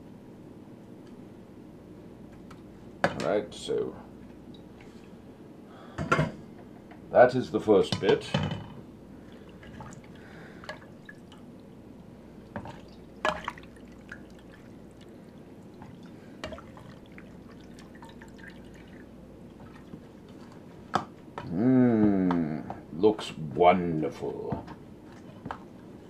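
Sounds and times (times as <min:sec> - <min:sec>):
liquid dripping and splashing: 0:09.2 - 0:11.8, 0:12.4 - 0:20.6.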